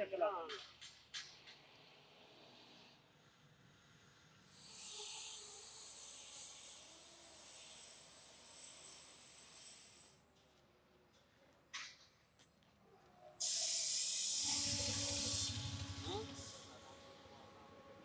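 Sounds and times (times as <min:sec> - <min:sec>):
high-pitched hiss: 0:04.5 - 0:10.2, 0:13.4 - 0:16.7.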